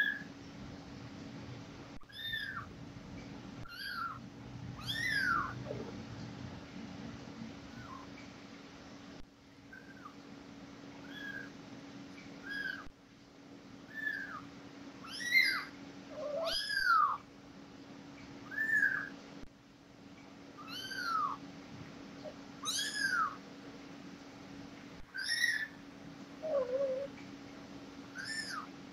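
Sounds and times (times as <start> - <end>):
newborn kittens mewing: 2.0 - 2.7, 3.6 - 4.2, 4.8 - 5.9, 11.0 - 11.5, 12.4 - 12.9, 13.9 - 14.4, 15.0 - 17.2, 20.6 - 21.4, 22.2 - 23.4, 25.1 - 25.7, 26.4 - 27.2, 28.2 - 28.7.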